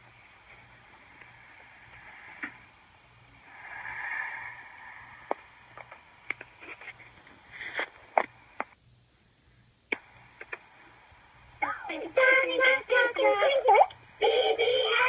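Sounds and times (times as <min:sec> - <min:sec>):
breathy hiss: 0:00.9 - 0:05.8
sharp clicks and taps: 0:05.3 - 0:06.5, 0:08.2 - 0:08.8, 0:09.9 - 0:10.7.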